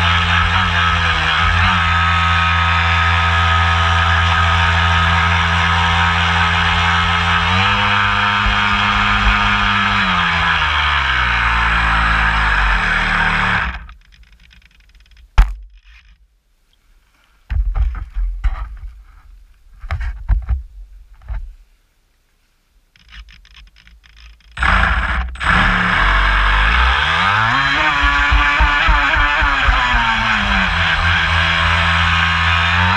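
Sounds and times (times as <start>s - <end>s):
model boat motor running: 0.0s - 13.9s, 24.6s - 32.9s
thuds of hand handling hull: 27.9s - 30.4s
sharp knock: 27.9s - 30.6s.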